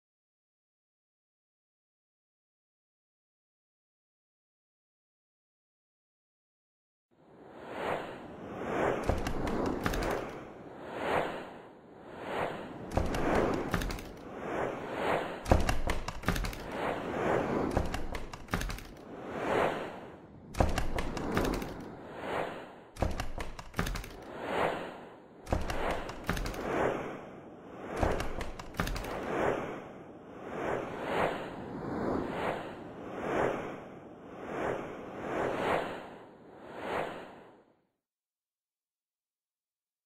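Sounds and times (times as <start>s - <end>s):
whooshes: 7.3s - 37.7s
sharp hits and thuds: 20.6s - 21.8s, 23.0s - 24.2s, 25.5s - 26.7s.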